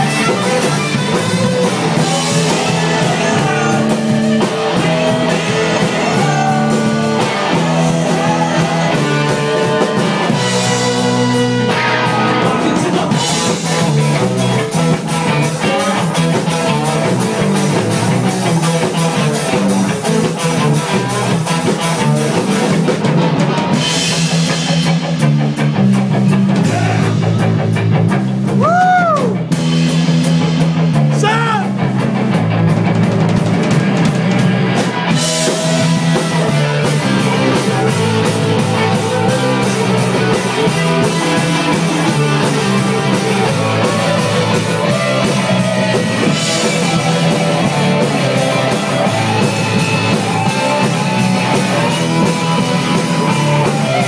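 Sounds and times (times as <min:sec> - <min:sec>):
low bass line: 0:00.0 - 0:23.0, 0:23.6 - 0:54.0
drum kit with cymbals: 0:00.0 - 0:54.0
electric guitar: 0:00.0 - 0:54.0.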